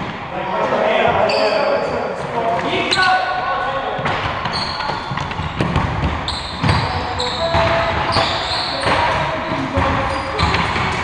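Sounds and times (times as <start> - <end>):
shoe squeaks on gym floor: 1.2 - 1.9, 4.4 - 5.6, 6.2 - 10.9
basketball bouncing: 4.0 - 11.0.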